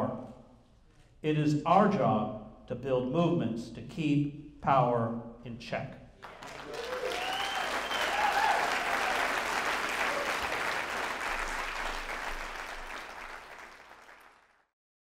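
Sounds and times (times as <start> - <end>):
audience whooping: 6.2 - 14.3
audience applauding: 6.2 - 14.7.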